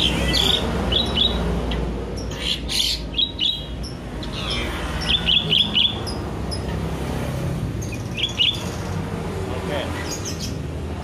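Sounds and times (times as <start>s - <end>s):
bird chirping: 0.0s - 6.8s, 7.7s - 9.0s, 9.8s - 10.7s.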